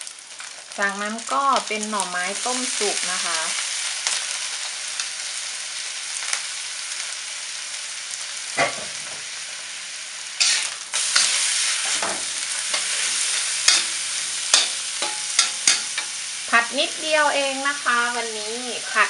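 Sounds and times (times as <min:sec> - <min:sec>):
food sizzling in oil: 0:00.0 - 0:19.0
spatula scraping metal wok: 0:10.4 - 0:16.5.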